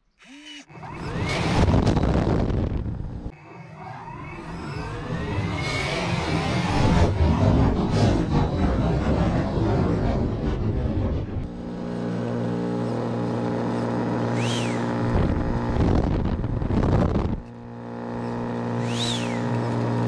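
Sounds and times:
loud rushing noise: 4.8 - 11.9
electric fan motors humming: 11.4 - 20.0.

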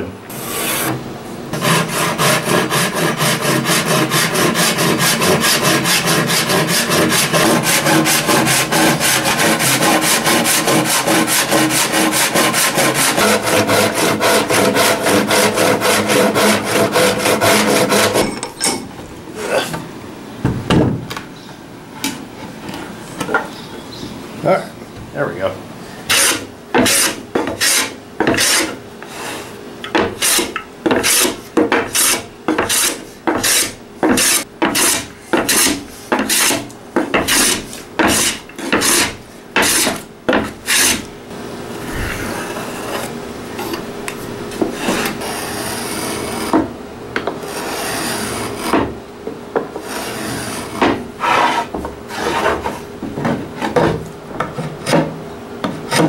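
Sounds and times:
hand plane shaving wood: 0.3 - 1.0, 1.6 - 18.2, 26.1 - 29.4, 30.2 - 41.0, 44.7 - 46.5, 47.4 - 48.8, 49.8 - 52.8
plane rubbing on wood: 0.3 - 1.0, 1.6 - 18.2, 26.1 - 29.4, 30.2 - 41.0, 44.7 - 46.5, 47.4 - 48.9, 49.8 - 52.8.

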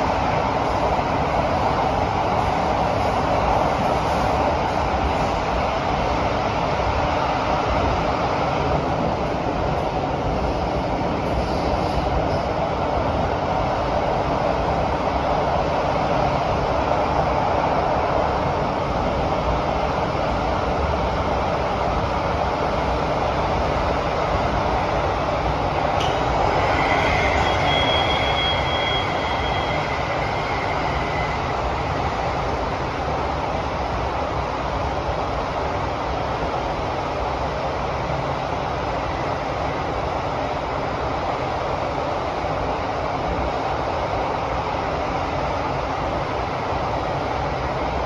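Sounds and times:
metro train wheels on rail: 0.0 - 48.0
high-pitched wheel squeal: 26.4 - 31.7.

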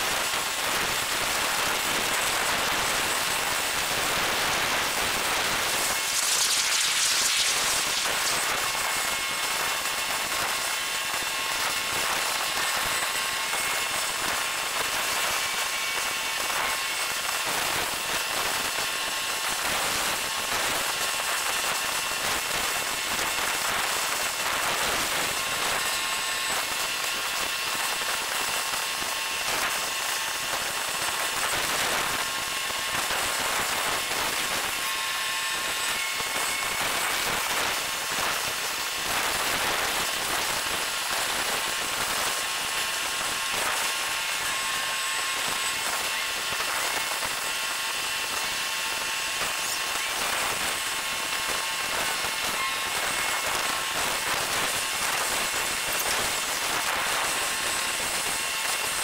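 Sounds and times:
faint high whistling tones: 5.8 - 9.2.

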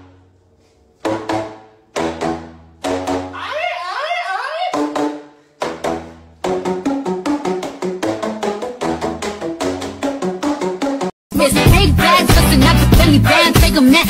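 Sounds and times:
bouncy percussive music with bass: 1.0 - 3.4, 4.7 - 14.0
busy music track: 1.0 - 3.8, 4.6 - 14.0.

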